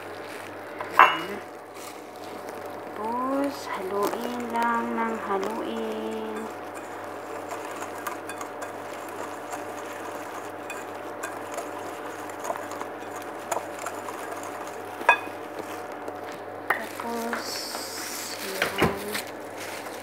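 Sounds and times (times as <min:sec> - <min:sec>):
whisk swishing through powder: 0:00.0 - 0:20.0
whisk wires clinking on glass: 0:15.0 - 0:15.4.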